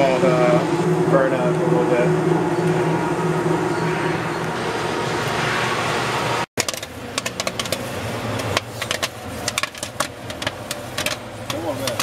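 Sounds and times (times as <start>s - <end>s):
steady rushing noise: 0.0s - 11.9s
low motor hum: 0.0s - 12.0s
popcorn popping: 6.6s - 12.0s.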